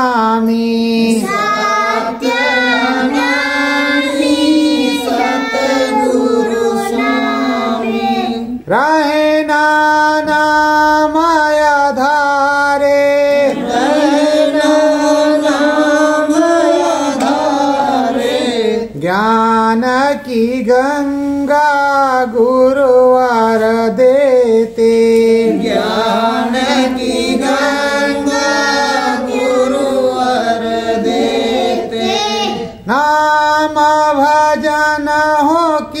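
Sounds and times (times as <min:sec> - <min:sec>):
woman singing devotional song: 0:00.0 - 0:17.3.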